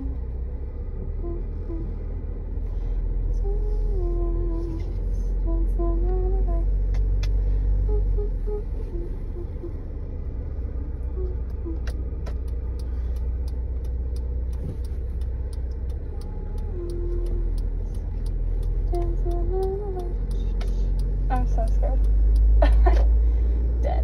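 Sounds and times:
car cabin rumble: 0.0 - 24.0
light clicks: 11.4 - 23.1.

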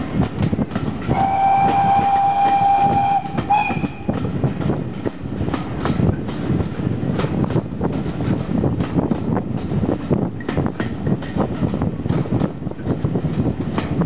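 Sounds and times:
train wheels clattering on rails: 0.0 - 14.0
steam locomotive whistle: 1.1 - 4.2.

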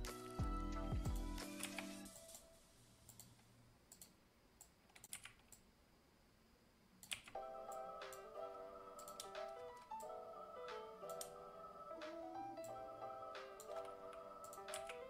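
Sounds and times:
background music: 0.0 - 2.6, 7.3 - 15.0
keyboard and mouse clicks: 1.4 - 2.5, 3.1 - 5.7, 7.0 - 8.3, 9.0 - 10.1, 10.7 - 11.4, 13.4 - 15.0.

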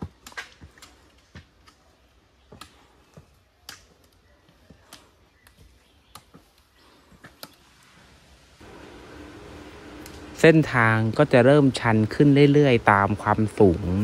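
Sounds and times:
footsteps on rocky trail: 0.0 - 7.6
trekking poles tapping rock: 0.0 - 7.6.

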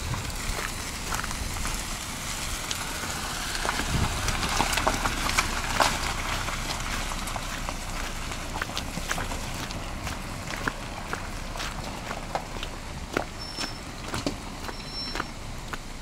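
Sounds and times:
tyres crunching on gravel: 0.0 - 16.0
wind on microphone: 3.7 - 4.5.

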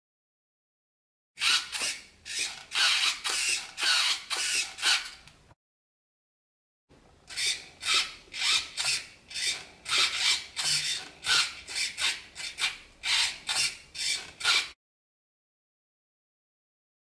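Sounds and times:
steering servo whirring: 1.4 - 5.3, 7.3 - 14.8.

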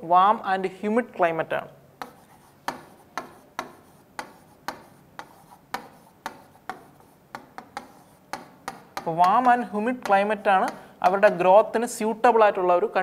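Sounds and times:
marker tapping on whiteboard: 2.0 - 11.4.

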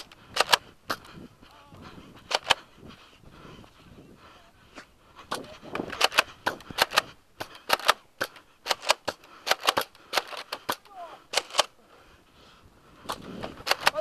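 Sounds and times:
toy blaster plastic clacks: 13.6 - 14.0.

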